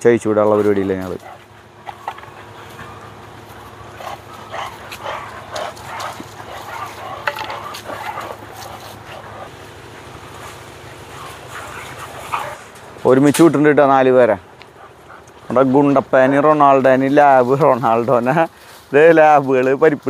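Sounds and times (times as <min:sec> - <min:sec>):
dogs play-wrestling vocalizing: 0:00.6 - 0:12.9, 0:14.4 - 0:15.8.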